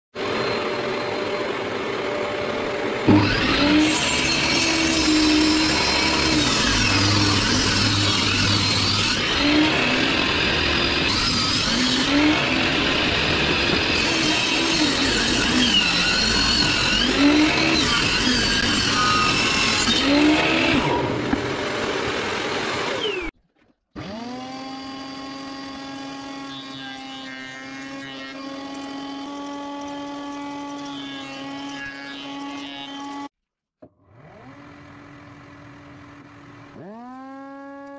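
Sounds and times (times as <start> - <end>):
table saw ripping wood: 3.0 - 34.8, 36.6 - 37.9.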